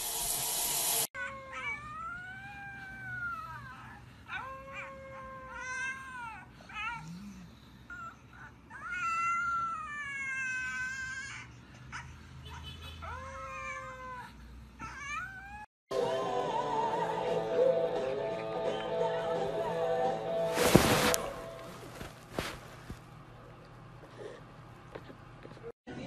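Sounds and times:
dog whining: 0:01.2 - 0:12.1, 0:13.0 - 0:15.7.

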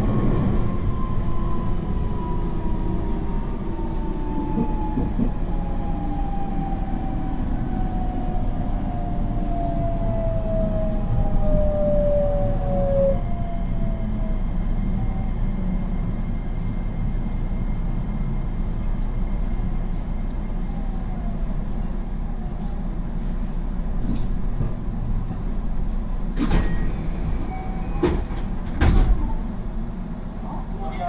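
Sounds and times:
low hum of standing train: 0:00.0 - 0:31.0
train doors opening with a clatter: 0:24.0 - 0:29.8.

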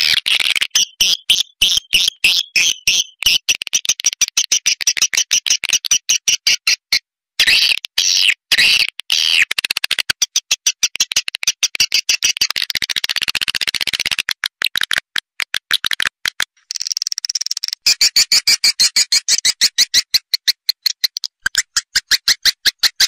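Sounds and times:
swiftlet chirps and clicks: 0:15.6 - 0:23.0.

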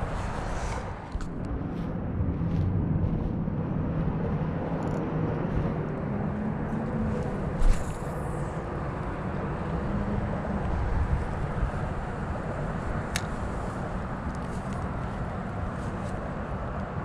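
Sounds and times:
low outdoor rumble: 0:00.0 - 0:17.0
fishing rod swish: 0:07.6 - 0:08.3.

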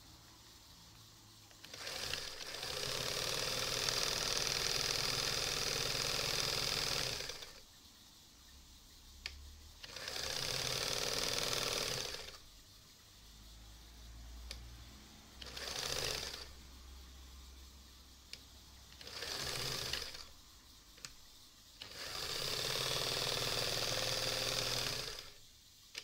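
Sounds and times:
sewing machine stitching: 0:01.5 - 0:07.6, 0:09.8 - 0:12.4, 0:15.4 - 0:16.6, 0:18.9 - 0:20.3, 0:21.8 - 0:25.4.

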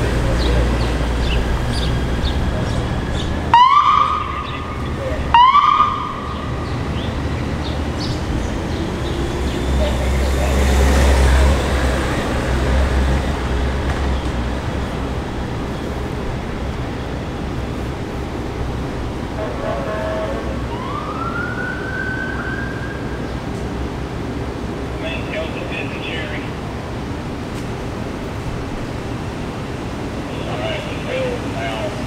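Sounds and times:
street noise: 0:00.0 - 0:32.0
vehicle engine rumble passing: 0:00.0 - 0:32.0
electronic siren whoops: 0:03.5 - 0:04.7, 0:05.3 - 0:06.6, 0:19.8 - 0:23.2.

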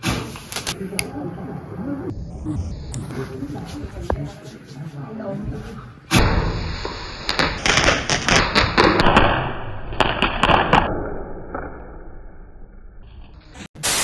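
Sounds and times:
firework sparks hissing: 0:06.2 - 0:08.6, 0:13.8 - 0:14.0
firework cracks and pops: 0:06.8 - 0:10.9.

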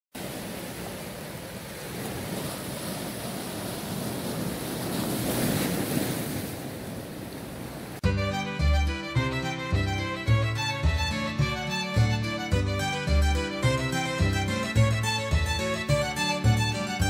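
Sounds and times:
waves breaking on rocks: 0:00.2 - 0:08.0.

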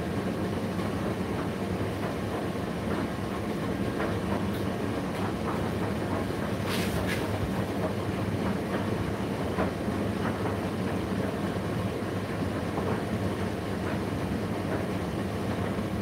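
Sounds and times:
tumble dryer hum: 0:00.0 - 0:10.6.

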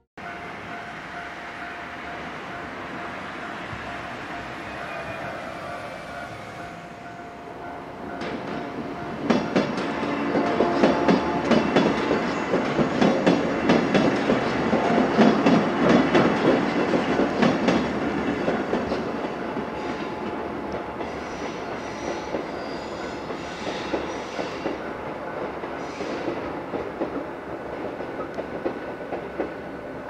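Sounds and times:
train wheels clattering: 0:08.2 - 0:29.7
faint high squeals: 0:21.2 - 0:24.4.

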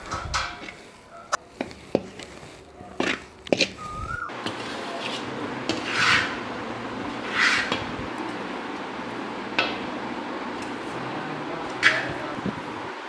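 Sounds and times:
spoon scraping iron pan: 0:00.0 - 0:03.8, 0:04.4 - 0:07.9
fan noise: 0:00.0 - 0:13.0.

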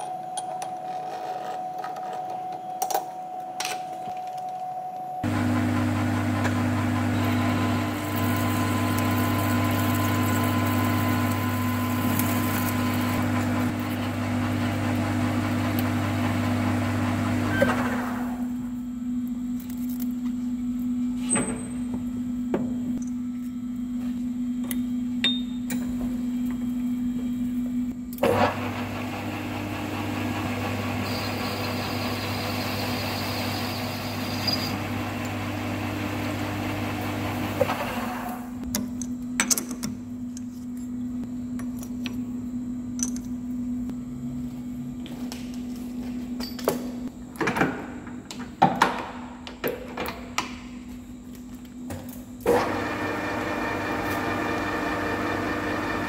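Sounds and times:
metal lathe humming: 0:05.3 - 0:18.4, 0:28.4 - 0:38.3.

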